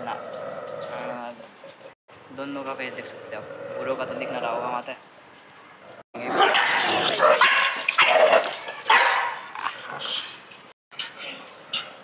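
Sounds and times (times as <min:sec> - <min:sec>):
dog barking aggressively: 0:06.3 - 0:10.0.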